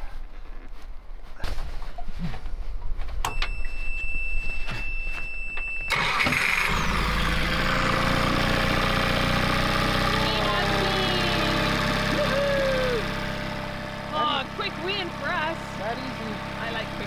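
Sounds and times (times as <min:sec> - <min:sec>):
outboard motor starter cranking: 0:05.9 - 0:10.3
outboard motor idling: 0:05.9 - 0:17.0.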